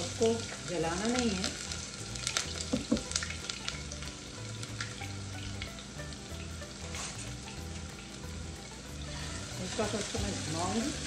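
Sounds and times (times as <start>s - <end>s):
onion frying in oil: 0.0s - 11.0s.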